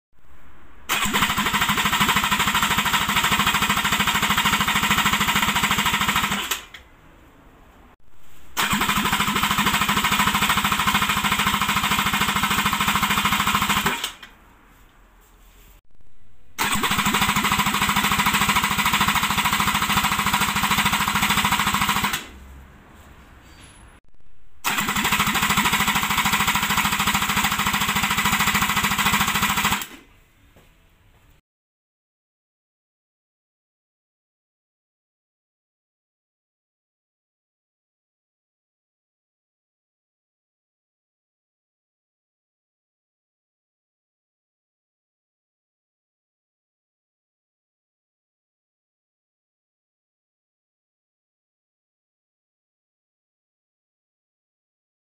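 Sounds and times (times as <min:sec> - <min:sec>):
engine cranking on starter: 0:00.9 - 0:06.9, 0:08.6 - 0:14.3, 0:16.6 - 0:22.4, 0:24.6 - 0:30.1.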